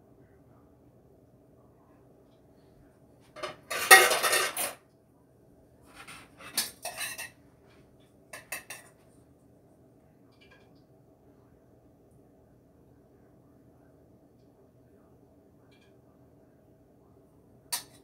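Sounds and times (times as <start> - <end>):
metal pot and utensils clattering: 3.4 - 4.8, 5.9 - 7.4, 8.4 - 9.0.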